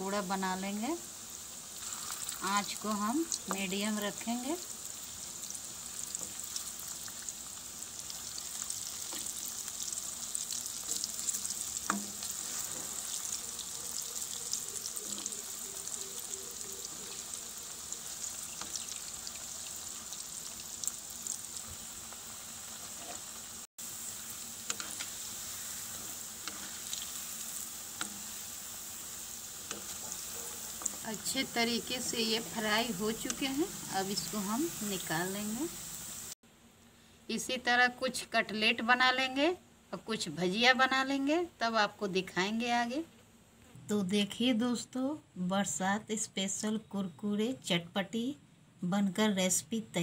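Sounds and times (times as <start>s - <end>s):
fritters deep-frying in oil: 0.0s - 36.4s.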